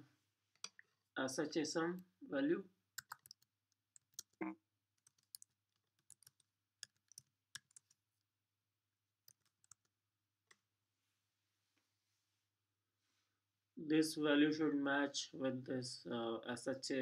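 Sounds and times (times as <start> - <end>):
keyboard keys clicking: 3.0 - 3.4.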